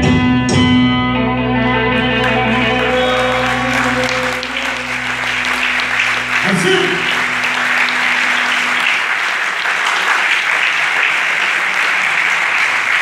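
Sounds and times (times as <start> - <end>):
low stage hum: 1.0 - 9.9
audience applauding: 1.9 - 13.0.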